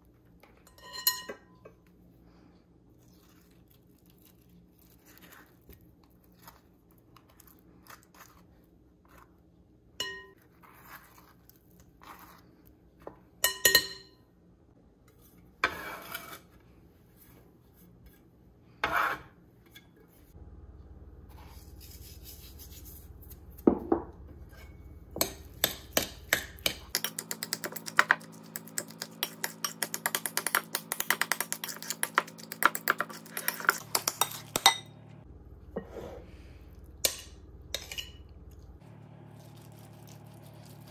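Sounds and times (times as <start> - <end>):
utensil mashing in glass bowl: 25.2 - 34.8.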